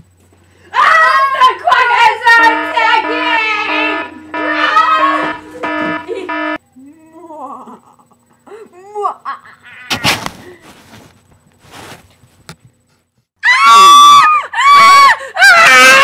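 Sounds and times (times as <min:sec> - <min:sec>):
high-pitched human screaming: 0:00.7 - 0:06.3, 0:13.4 - 0:16.0.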